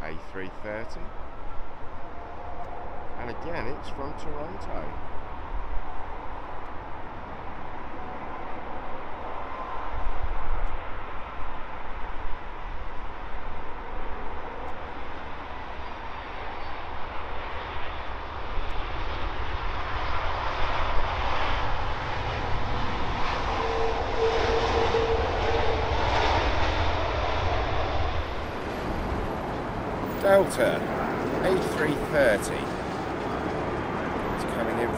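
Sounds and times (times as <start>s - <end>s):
jet engines of landing airliner: 0.0s - 34.9s.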